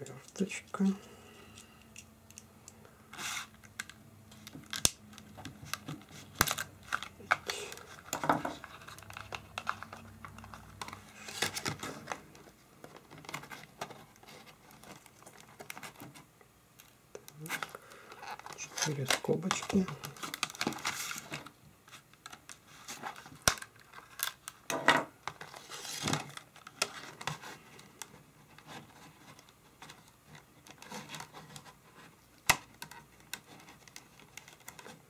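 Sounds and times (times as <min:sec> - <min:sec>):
plastic packaging crackling: 0:03.2 - 0:16.2, 0:16.8 - 0:31.6.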